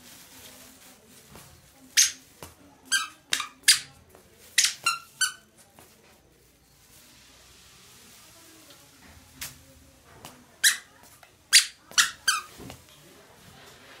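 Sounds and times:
squeaker sandals squeaking: 1.9s - 5.6s, 10.6s - 12.6s.

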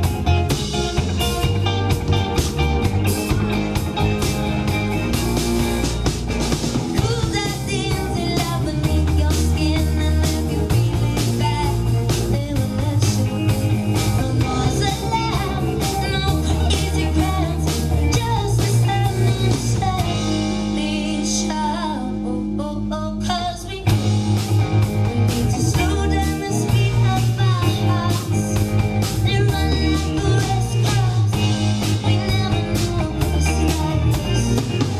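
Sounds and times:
drum kit: 0.0s - 22.3s, 23.7s - 34.9s
electric bass: 0.0s - 34.9s
electric guitars: 0.0s - 34.9s
woman singing: 6.9s - 24.1s, 24.8s - 34.9s.

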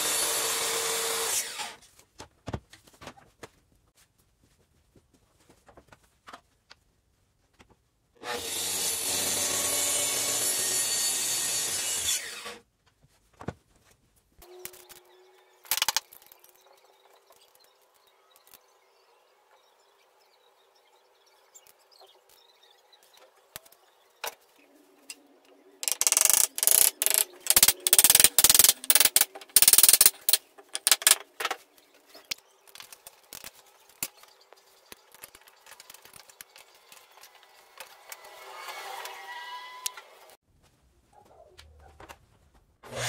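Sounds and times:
wood clicking and knocking: 25.8s - 31.6s.

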